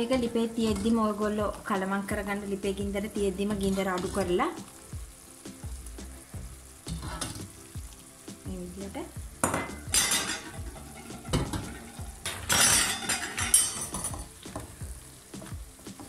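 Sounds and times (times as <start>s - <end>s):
sauce sizzling in a frying pan: 0.0s - 16.0s
utensil scraping a pan: 3.4s - 4.4s, 6.9s - 7.5s, 9.6s - 14.8s.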